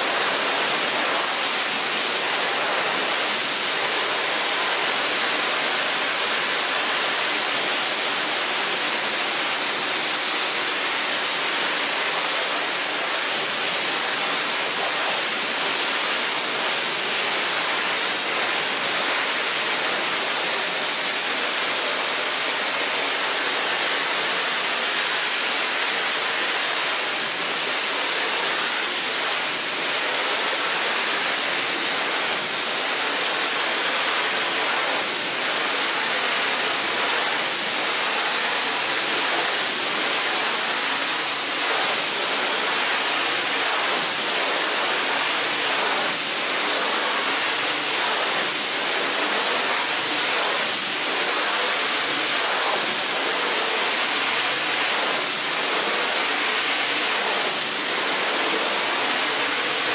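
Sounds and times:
carpet cleaner rushing hiss: 0.0s - 59.9s.

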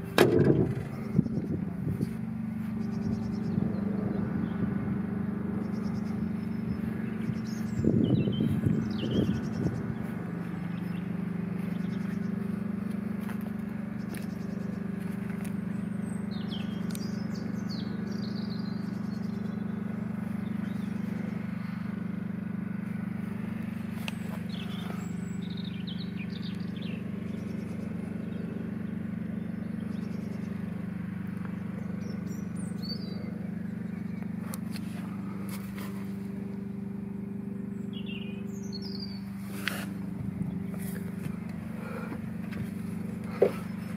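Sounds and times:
engine idling: 0.0s - 43.9s
bird chirps: 31.5s - 35.9s, 37.6s - 39.9s.

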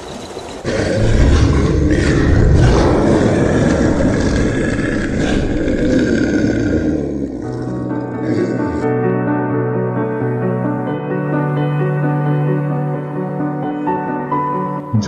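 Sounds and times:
big cats roaring and growling: 0.6s - 9.1s.

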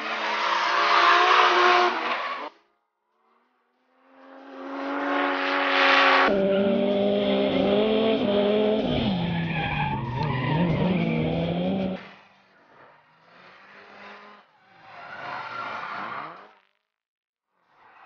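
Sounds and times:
car engine revving: 4.0s - 14.9s
tyres screeching: 8.9s - 12.0s.

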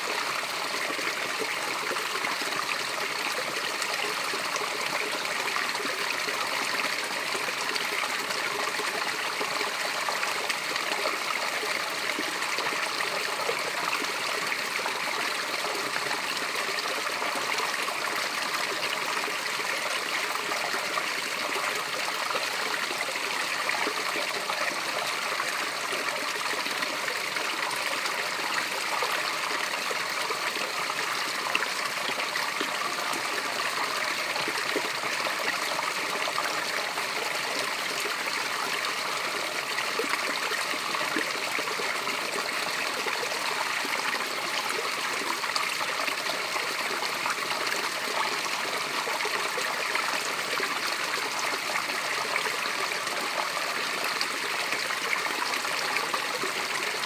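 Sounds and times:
small waterfall splashing: 0.0s - 57.0s.

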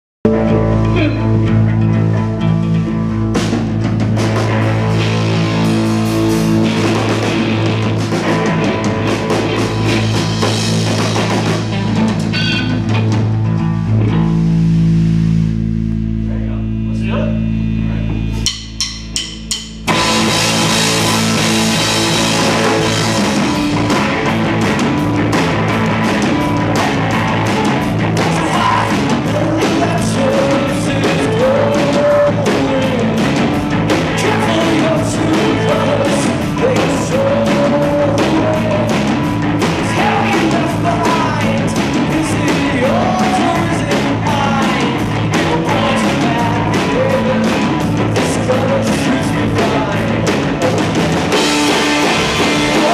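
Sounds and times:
live rock band playing: 0.2s - 52.9s
male lead vocal: 0.3s - 1.6s, 26.6s - 52.9s
short sharp band hits: 18.4s - 20.4s.

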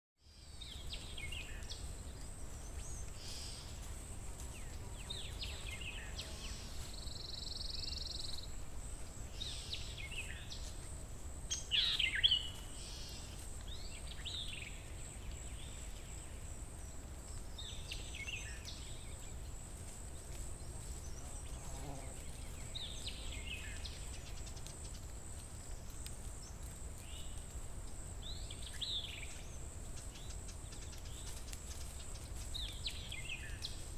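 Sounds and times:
birds chirping: 0.2s - 8.6s, 11.5s - 19.6s.

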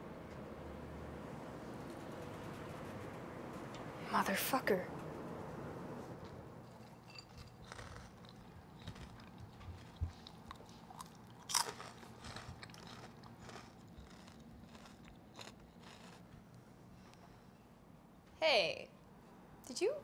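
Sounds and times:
crunching and chewing: 6.7s - 16.5s.

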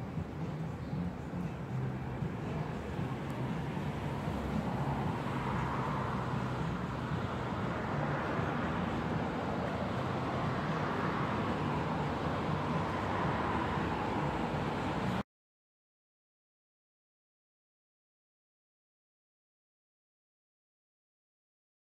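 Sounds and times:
outdoor background noise: 0.0s - 15.2s.

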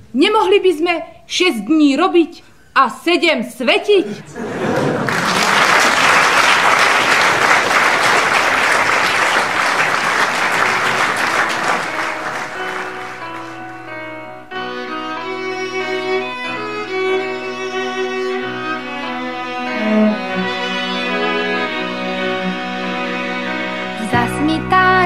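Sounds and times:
audience applauding: 4.3s - 13.9s
instrumental music with bowed strings: 11.0s - 25.0s.

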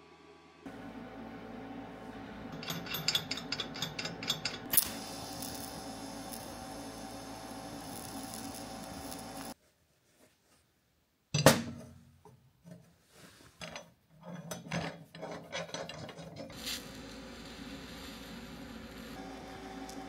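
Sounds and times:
metal clank ringing: 2.5s - 4.8s
welding arc hissing: 4.6s - 9.6s, 16.5s - 20.0s.

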